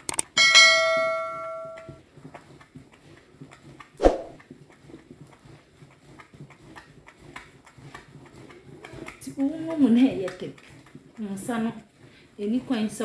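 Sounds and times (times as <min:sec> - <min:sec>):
notification bell chime: 0:00.4 - 0:01.9
stick swishing in liquid soap: 0:02.4 - 0:13.0.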